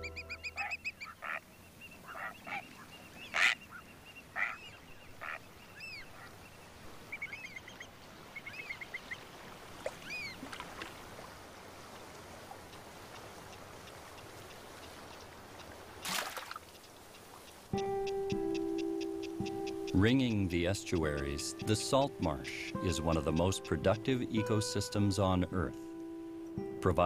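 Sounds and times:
waterbirds honking: 0.0s - 27.0s.

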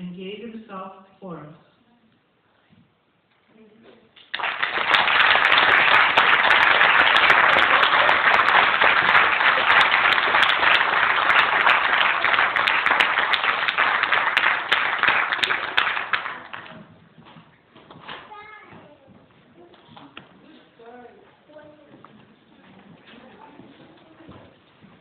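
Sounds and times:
audience applauding: 4.2s - 16.7s.

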